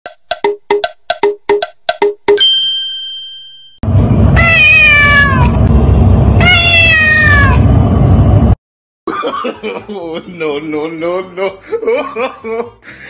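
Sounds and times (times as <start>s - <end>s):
ringing ding: 2.4s - 3.8s
cat meowing: 4.4s - 5.6s, 6.4s - 7.6s.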